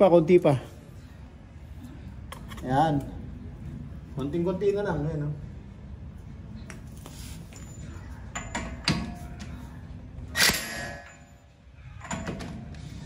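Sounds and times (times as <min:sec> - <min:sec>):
metallic ring: 0:10.4 - 0:12.3.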